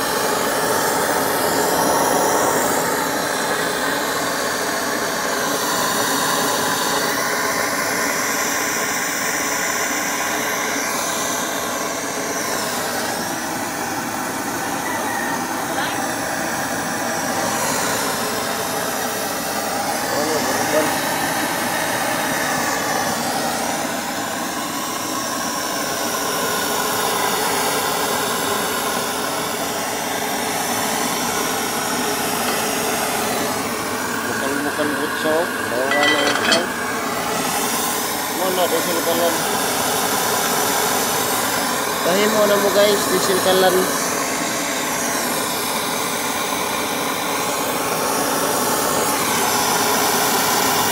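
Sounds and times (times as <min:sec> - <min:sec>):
burner flame rushing hiss: 0:00.0 - 0:14.8, 0:15.4 - 0:35.9.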